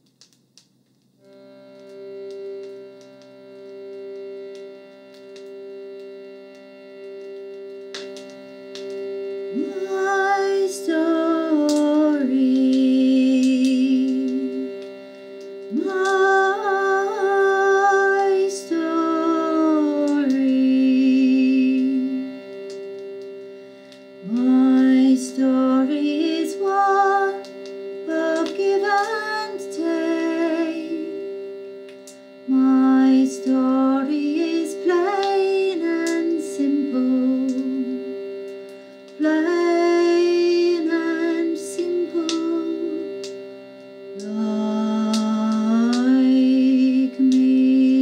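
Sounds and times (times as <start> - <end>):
steady held drone: 1.2 - 48.0
woman singing: 9.5 - 14.9, 15.7 - 22.4, 24.2 - 31.3, 32.5 - 38.2, 39.2 - 43.3, 44.2 - 48.0.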